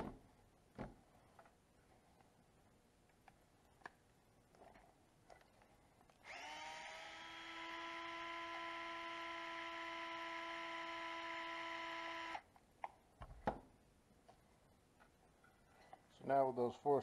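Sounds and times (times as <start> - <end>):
cordless drill whining: 6.2 - 12.4.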